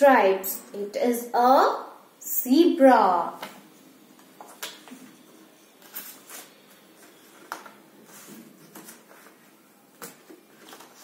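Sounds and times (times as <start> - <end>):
paper rustling: 4.2 - 11.0.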